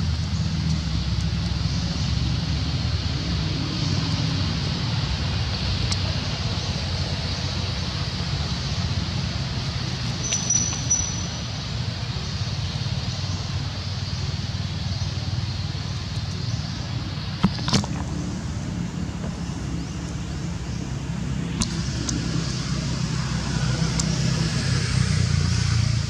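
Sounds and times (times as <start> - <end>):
low rumble with hiss: 0.0 - 26.0.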